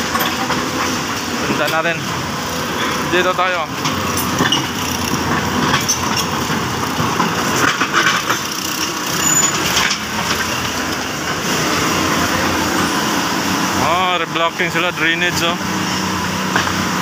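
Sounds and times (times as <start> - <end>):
diesel engine running: 0.0 - 17.0
knocks and clatter: 3.8 - 11.4.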